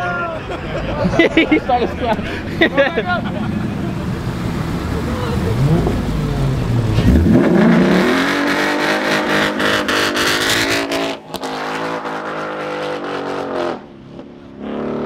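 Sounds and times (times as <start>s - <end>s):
car engine revving high: 3.2s - 15.0s.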